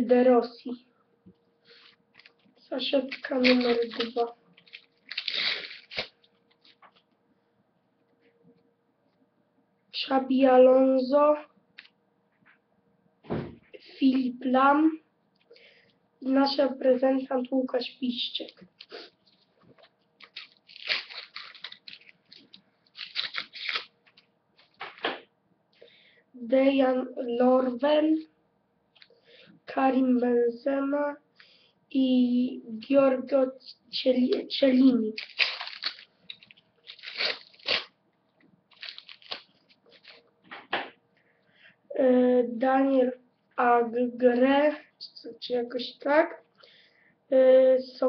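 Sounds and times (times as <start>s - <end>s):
foil wrapper ripping and crinkling: 1.7s - 7.0s, 20.2s - 25.0s, 34.8s - 38.0s, 38.7s - 40.2s.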